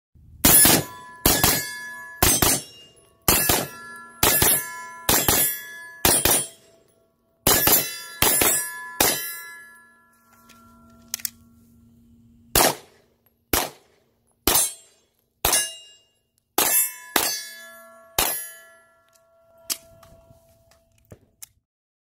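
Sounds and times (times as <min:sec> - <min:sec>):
gunshots: 0:00.4 - 0:06.6, 0:07.5 - 0:09.3, 0:12.6 - 0:14.8
steel targets ringing: 0:00.4 - 0:11.9, 0:14.4 - 0:20.7.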